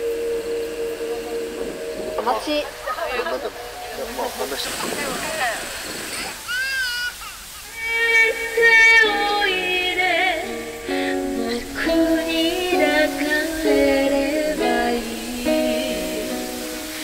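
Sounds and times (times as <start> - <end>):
woman singing into a microphone: 7.7 - 17.0
plucked string notes: 8.6 - 17.0.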